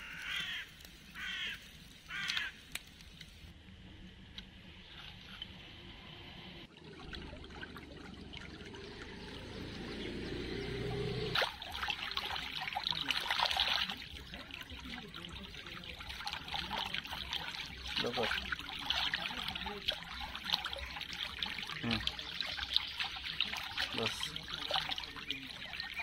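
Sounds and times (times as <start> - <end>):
stream trickling over stones: 0.0 - 3.5, 6.6 - 26.0
hands dipping into water: 11.4 - 26.0.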